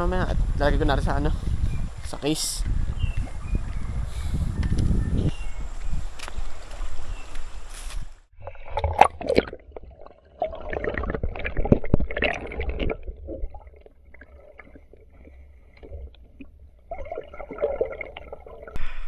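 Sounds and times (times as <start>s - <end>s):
water gurgling underwater: 8.4s - 18.8s.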